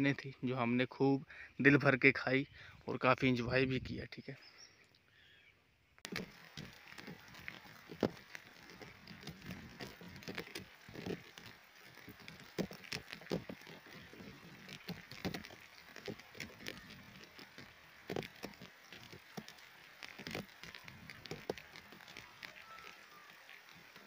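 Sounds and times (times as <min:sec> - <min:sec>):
rain hissing: 0:06.0 - 0:24.0
raindrops ticking: 0:06.0 - 0:24.0.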